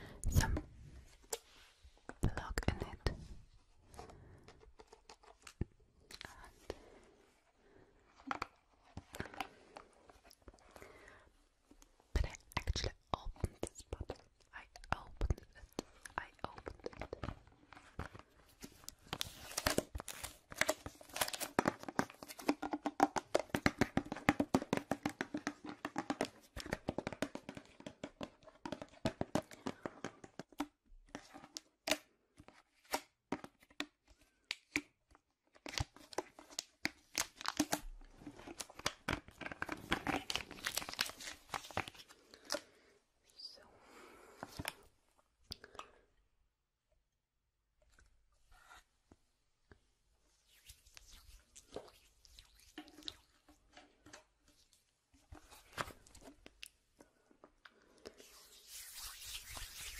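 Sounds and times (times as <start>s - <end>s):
crinkling and crackling of handling: 35.6s - 42.7s.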